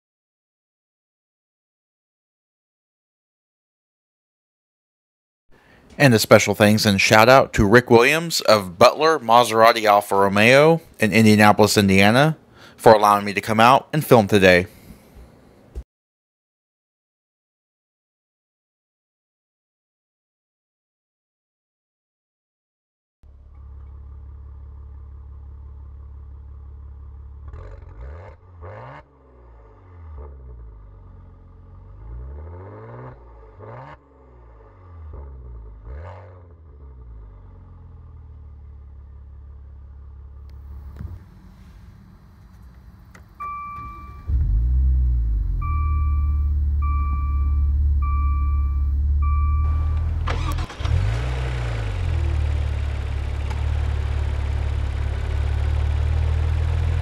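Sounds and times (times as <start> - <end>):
car engine revving: 23.3 - 57.0
car chime beeping: 43.4 - 44.6, 45.3 - 50.9.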